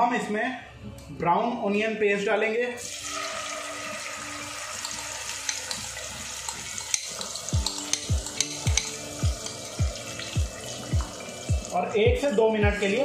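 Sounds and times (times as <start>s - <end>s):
spices sizzling in hot oil: 2.8s - 11.8s.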